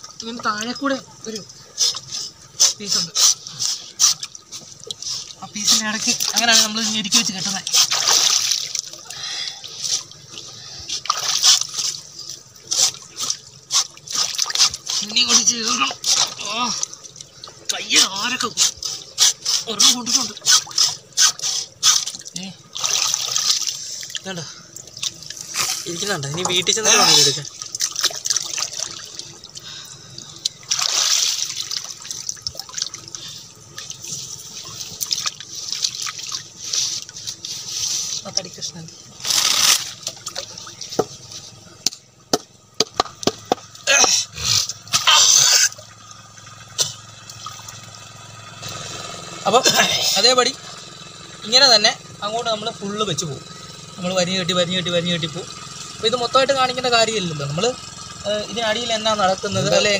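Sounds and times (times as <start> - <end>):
water splashing and dripping: 0.0 - 43.8, 44.6 - 49.2.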